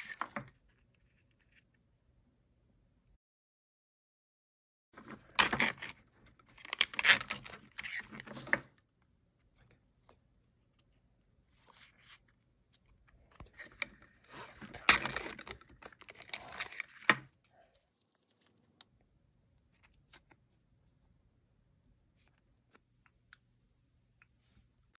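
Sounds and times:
packaging crinkling and tearing: 6.6s - 8.1s, 14.3s - 17.1s.

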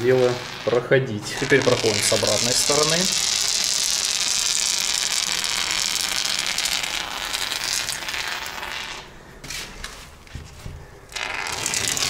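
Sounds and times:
foam hissing from foam gun: 1.3s - 9.0s.

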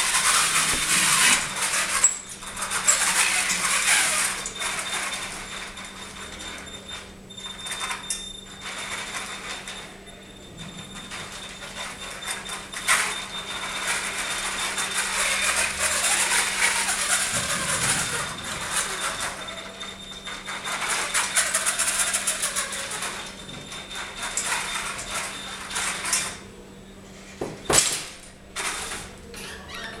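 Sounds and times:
robot crashing onto floor: 27.7s - 28.2s.

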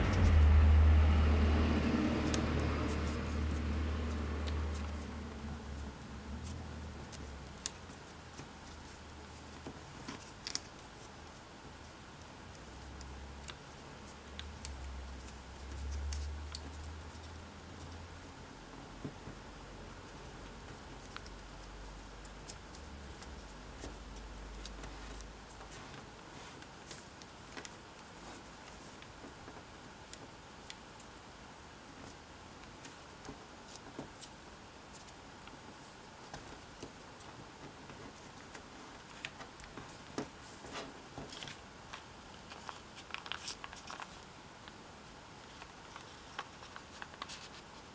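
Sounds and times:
low rumble: 0.0s - 6.4s
low steady hiss: 0.0s - 47.9s
paper being folded and creased: 2.2s - 11.5s, 12.6s - 17.9s, 32.0s - 44.8s, 45.4s - 47.9s.

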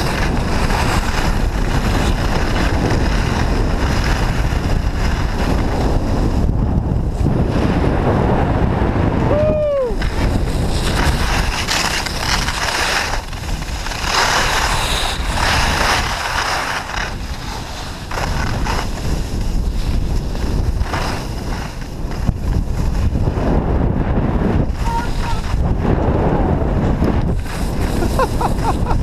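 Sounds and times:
skis scraping on packed snow: 0.0s - 8.0s, 10.0s - 26.2s, 26.8s - 29.0s
wind on microphone: 0.0s - 29.0s.

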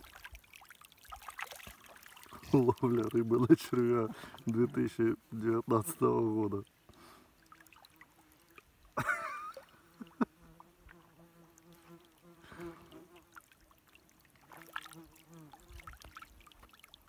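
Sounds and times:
insect buzzing: 9.6s - 13.4s, 14.5s - 16.0s.

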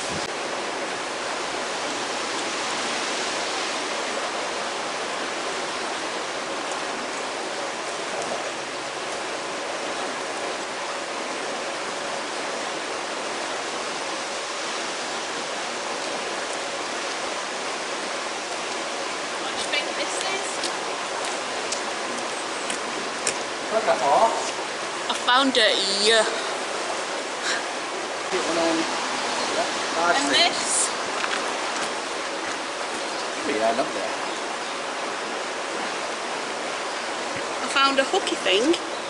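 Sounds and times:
water rushing: 0.0s - 39.0s.

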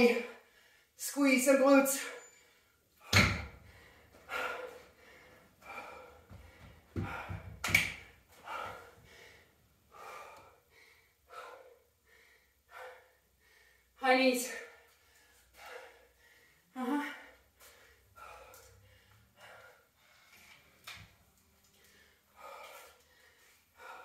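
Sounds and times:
woman breathing hard and gasping: 3.0s - 14.0s, 14.6s - 20.8s, 21.6s - 24.0s
dumbbell thumping on floor: 3.1s - 3.6s, 6.3s - 8.1s.

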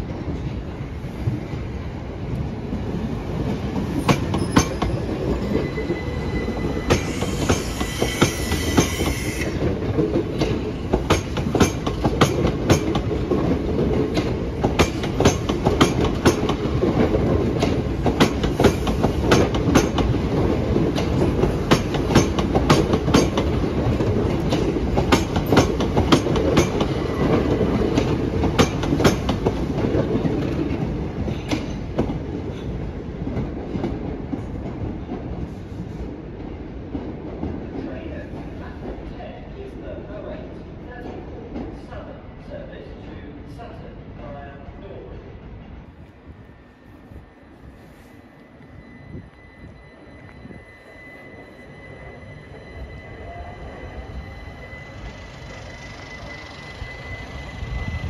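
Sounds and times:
electric train running past: 0.0s - 58.0s
high ringing tone: 4.2s - 9.6s, 46.7s - 58.0s.

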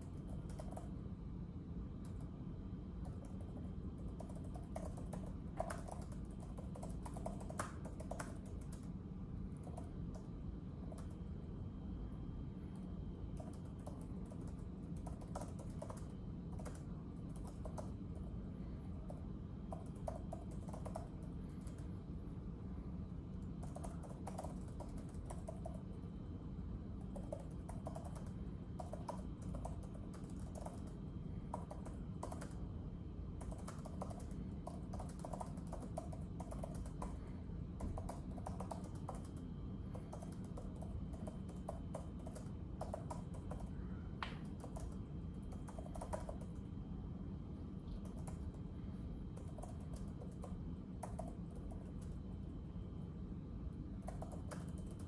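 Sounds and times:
keyboard keystroke clicks: 0.0s - 0.9s, 3.0s - 8.9s, 13.3s - 18.0s, 19.1s - 21.9s, 27.0s - 32.6s, 33.4s - 37.2s, 37.8s - 46.6s, 49.4s - 52.2s, 54.0s - 55.0s
low background rumble: 0.0s - 55.0s.

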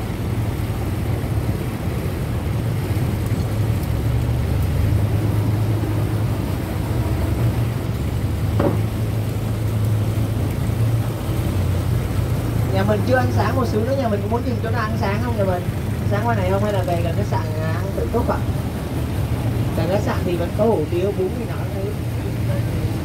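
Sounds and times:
boat engine droning: 0.0s - 23.0s.

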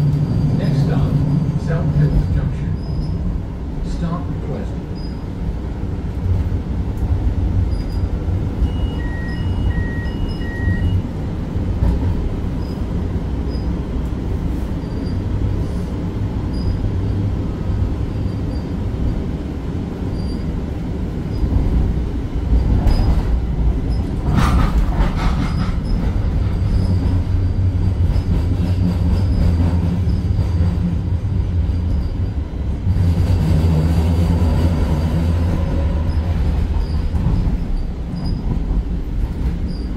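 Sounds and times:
wheels rumbling on track: 0.0s - 39.9s
wheel squeal: 2.7s - 3.2s, 16.5s - 16.8s, 20.1s - 20.5s, 36.0s - 38.5s, 39.7s - 39.9s
short electronic beeps: 8.6s - 11.0s.

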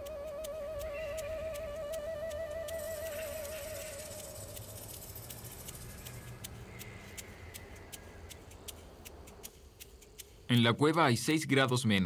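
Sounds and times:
wavering held music note: 0.0s - 5.2s
short sharp ticks: 0.0s - 11.8s
outdoor background hiss: 0.0s - 12.0s
thin high steady tones: 0.0s - 12.0s.

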